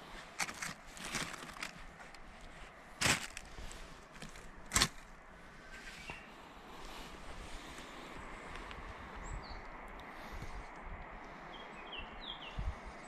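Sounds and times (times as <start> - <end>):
rustling: 0.0 - 5.2.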